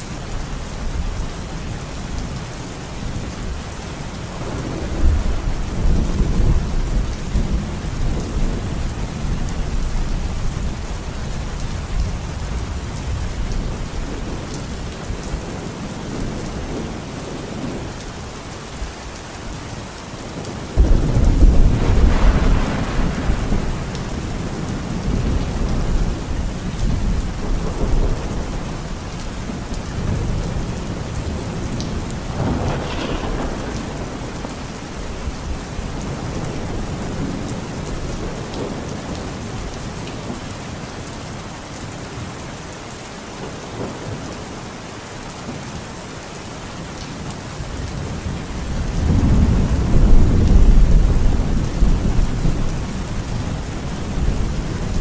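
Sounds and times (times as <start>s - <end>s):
heavy rain pouring: 0.0s - 55.0s
thunder clap rumbling: 4.4s - 10.1s, 20.4s - 39.4s, 47.9s - 55.0s.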